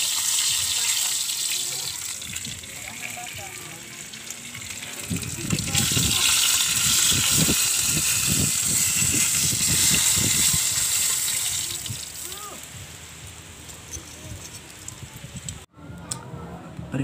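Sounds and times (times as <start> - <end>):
fish sizzling in hot oil: 0.0 - 13.0.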